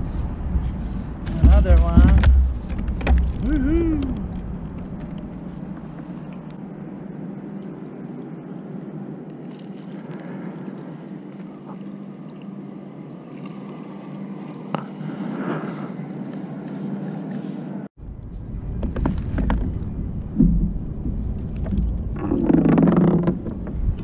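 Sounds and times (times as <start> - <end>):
wind buffeting microphone: 0.0 - 9.2, 18.0 - 24.0
steady low hum: 0.0 - 24.0.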